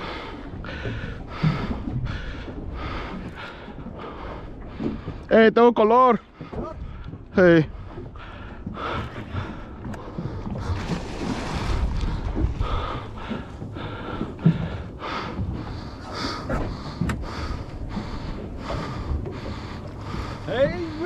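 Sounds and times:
person breathing hard and fast: 8.1s - 21.0s.

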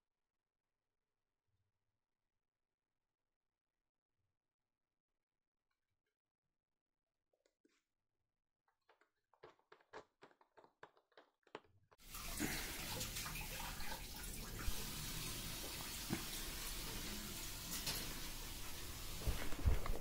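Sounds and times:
tap water running: 12.0s - 20.0s.

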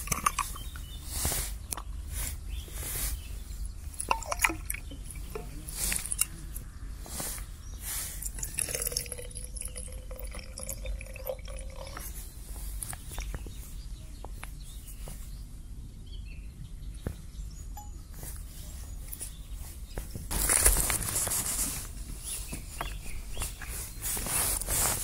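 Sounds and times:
metal vessels clinking: 0.0s - 0.8s, 3.9s - 6.4s
water pouring into metal cup: 4.0s - 6.3s, 8.2s - 12.2s.

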